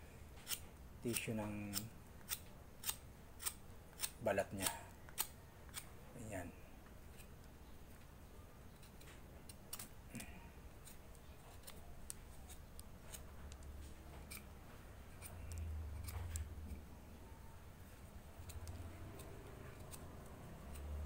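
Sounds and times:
knife scraping bark: 0:14.1 - 0:16.8, 0:18.4 - 0:21.0.

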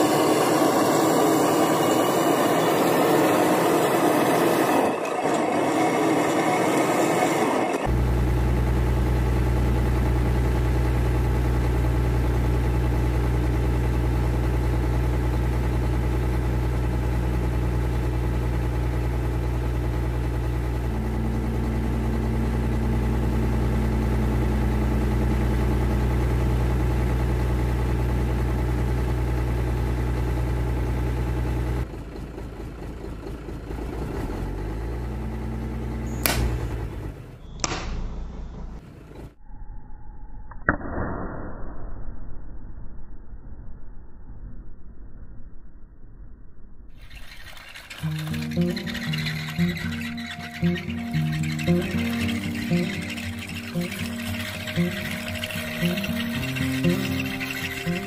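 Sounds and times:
diesel truck engine running: 0:00.0 - 0:37.5, 0:38.4 - 0:39.4, 0:47.0 - 0:58.0
sharp clicks: 0:36.2 - 0:36.7.

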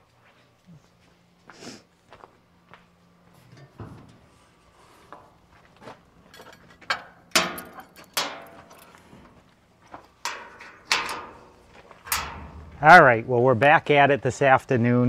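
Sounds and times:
metal knocks and rattles: 0:03.4 - 0:04.3, 0:06.2 - 0:09.0, 0:10.1 - 0:13.3
sheet metal clanks: 0:03.4 - 0:04.3, 0:06.3 - 0:09.0, 0:10.2 - 0:13.3.

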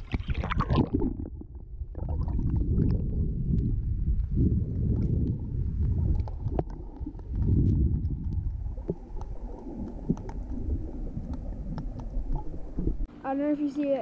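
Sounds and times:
muffled underwater water rumble: 0:00.0 - 0:13.1
faint clicks: 0:08.2 - 0:10.6.

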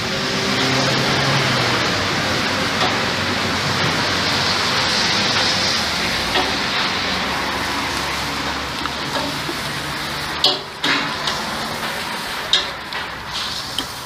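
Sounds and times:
loud rushing noise: 0:00.0 - 0:14.0.

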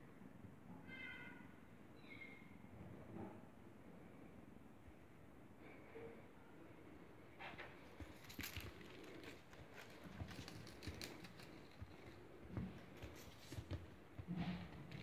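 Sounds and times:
kitten paws scampering on wooden floor: 0:07.6 - 0:15.0
scratchy rustles: 0:07.6 - 0:15.0.

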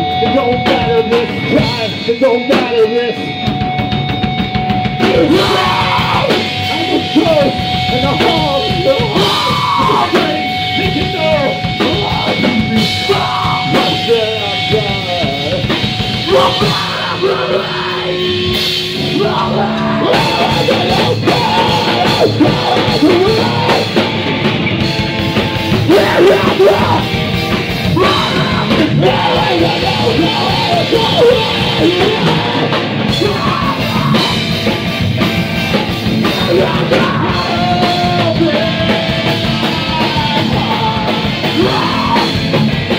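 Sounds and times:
person singing and yelling: 0:00.0 - 0:03.4, 0:05.0 - 0:24.4, 0:25.6 - 0:35.0, 0:35.7 - 0:42.9
drum kit: 0:00.0 - 0:42.9
electric guitar: 0:00.0 - 0:42.9.

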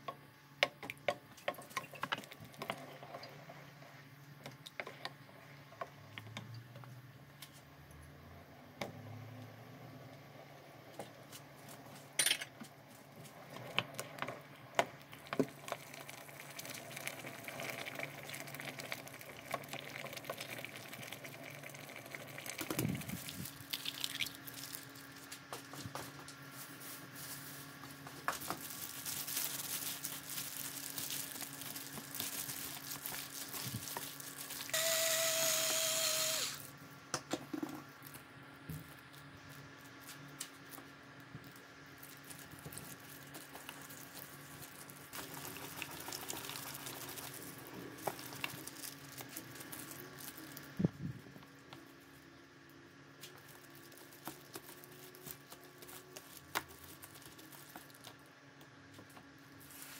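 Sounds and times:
loud whirring noise: 0:34.7 - 0:36.7.

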